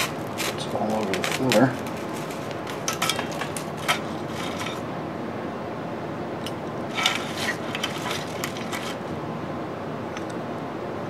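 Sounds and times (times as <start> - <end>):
metal tools clinking: 0.0 - 4.8, 6.9 - 9.0
steady background hiss: 0.0 - 11.0.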